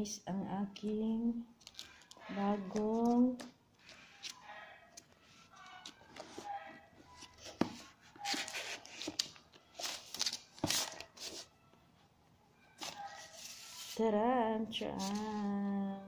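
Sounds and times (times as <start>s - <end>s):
rustling and scraping: 5.0s - 11.5s, 12.8s - 14.1s.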